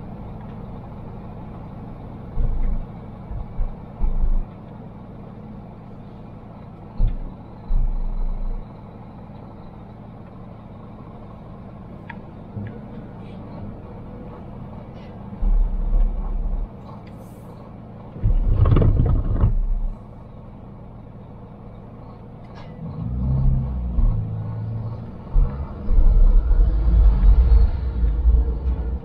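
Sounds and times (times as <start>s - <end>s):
car road noise: 0.0s - 29.0s
low rumbling: 2.3s - 4.5s, 5.8s - 9.1s, 12.4s - 17.0s, 18.1s - 20.2s, 22.8s - 29.0s.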